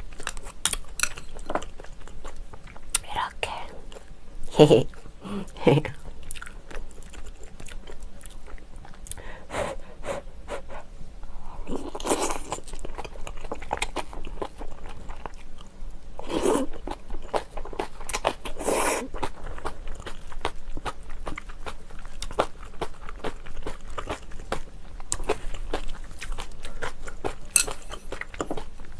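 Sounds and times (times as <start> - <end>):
wet crunching chewing: 5.9 - 9.2, 11.9 - 28.9.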